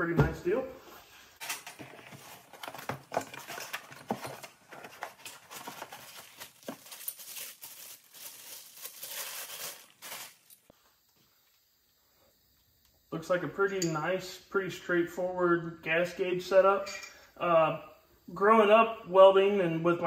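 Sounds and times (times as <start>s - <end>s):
packaging rustling and crinkling: 1.4s - 10.7s.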